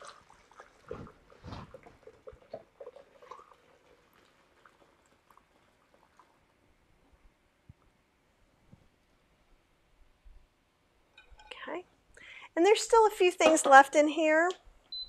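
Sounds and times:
tea dripping and trickling: 0.0s - 6.5s.

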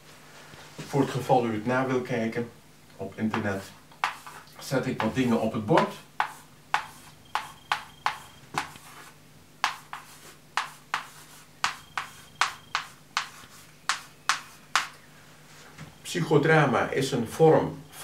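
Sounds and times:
chalk tapping on blackboard: 3.3s - 15.0s.

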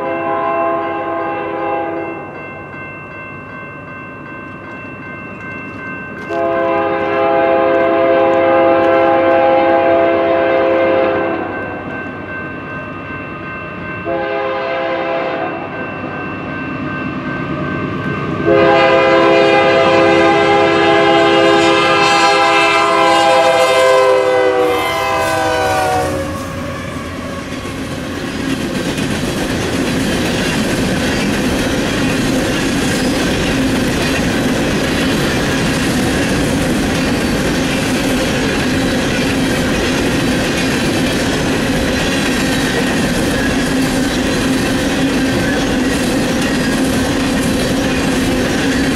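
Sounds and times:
locomotive air horn: 0.0s - 2.0s, 6.3s - 11.5s, 14.1s - 15.6s, 18.5s - 27.5s
freight cars rumbling and clacking: 27.4s - 48.9s.

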